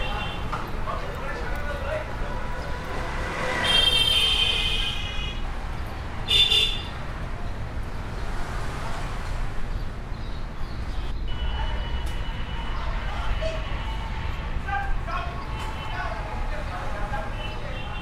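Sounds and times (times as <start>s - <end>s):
vehicle horns honking: 0.0s - 0.7s, 2.2s - 5.5s, 6.2s - 7.0s, 11.2s - 16.4s, 17.2s - 18.0s
street traffic rumble: 0.0s - 18.0s.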